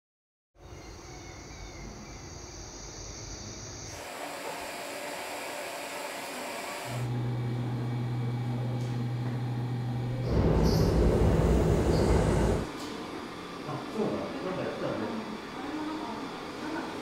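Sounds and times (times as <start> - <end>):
low hum: 7.1 - 12.7.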